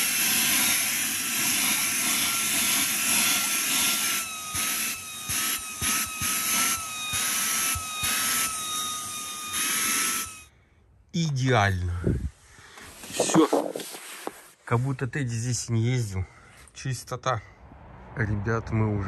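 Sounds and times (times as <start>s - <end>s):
handheld vacuum cleaner running: 0.0s - 10.5s.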